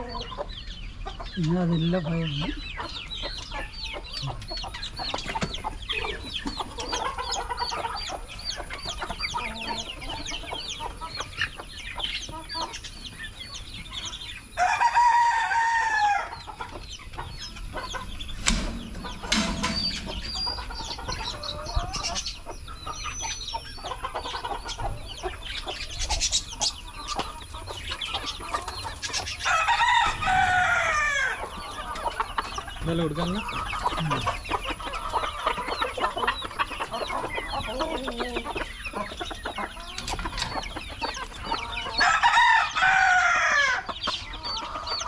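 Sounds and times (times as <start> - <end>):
chickens clucking: 0.0 - 45.0
rooster crowing: 14.6 - 16.5, 29.4 - 31.4, 41.9 - 43.9.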